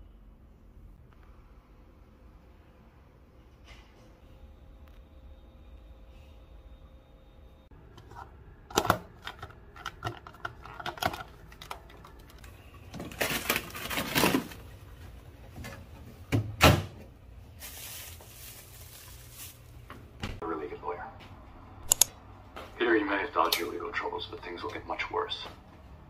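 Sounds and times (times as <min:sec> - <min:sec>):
freezer door thudding shut: 0:16.3 - 0:17.0.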